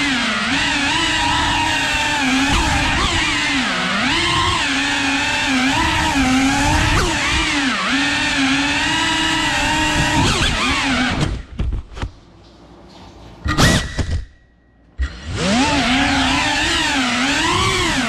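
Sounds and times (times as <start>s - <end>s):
drone motors whining: 0.0s - 11.4s, 15.0s - 18.0s.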